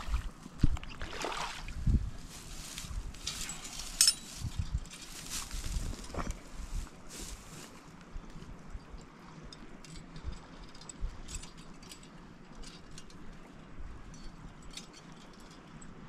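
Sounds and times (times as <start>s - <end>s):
metal trap clicking and rattling: 3.2s - 5.2s.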